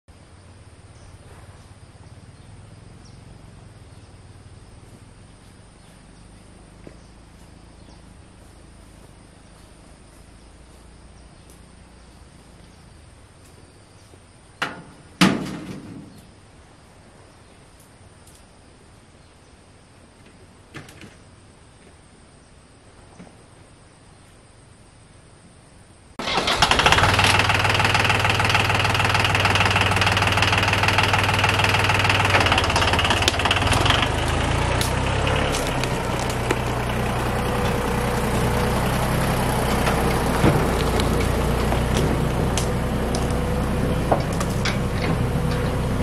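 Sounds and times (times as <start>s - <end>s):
high insect drone: 0.1s - 15.2s
metal clanks: 44.0s - 45.8s.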